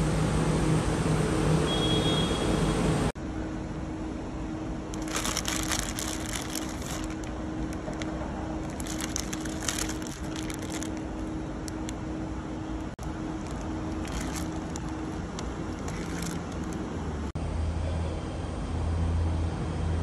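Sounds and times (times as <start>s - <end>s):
steady low hum: 0.0s - 20.0s
plastic bag crinkling: 5.0s - 11.9s, 13.0s - 16.9s.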